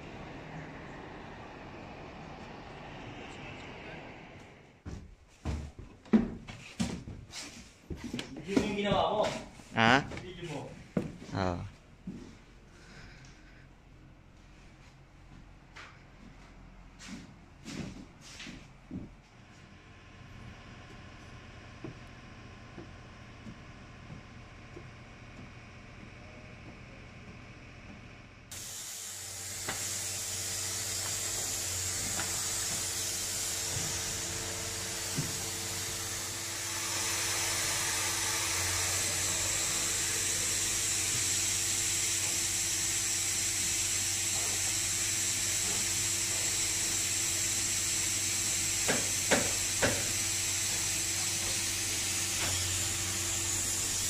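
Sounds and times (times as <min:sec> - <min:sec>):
low machine hum: 0:29.3 - 0:47.3.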